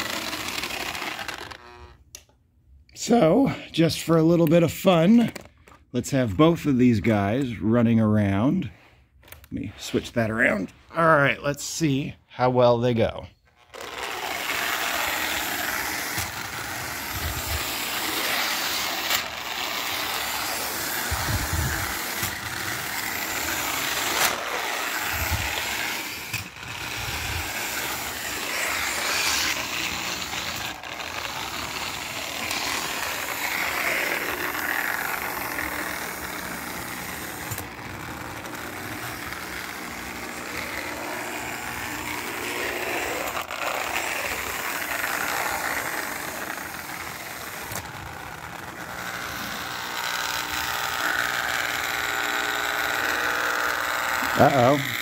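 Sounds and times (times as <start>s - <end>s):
toy trolleys whirring and rattling: 0.0s - 2.3s, 13.4s - 55.0s.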